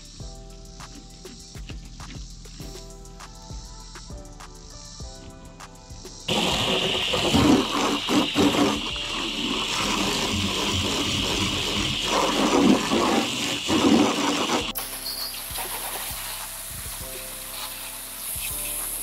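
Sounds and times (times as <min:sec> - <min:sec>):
water splashing: 0:06.3 - 0:14.7
water running from hose: 0:06.3 - 0:19.0.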